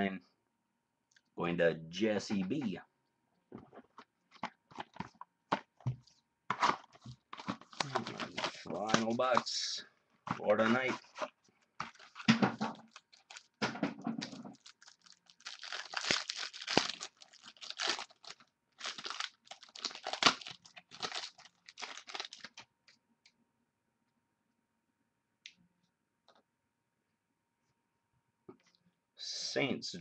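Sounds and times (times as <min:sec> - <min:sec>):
wrapper tearing and crinkling: 0:06.6 - 0:09.4, 0:10.7 - 0:13.6, 0:14.2 - 0:22.6.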